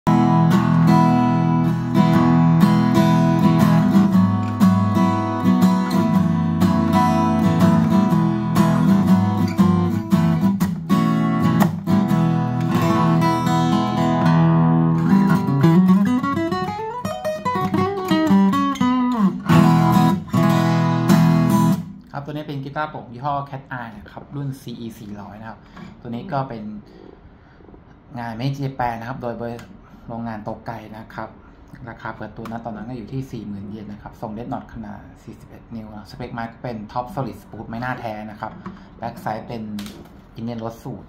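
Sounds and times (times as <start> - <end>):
acoustic guitar strumming chords: 0.1 - 22.0
guitar melody line: 0.1 - 22.1.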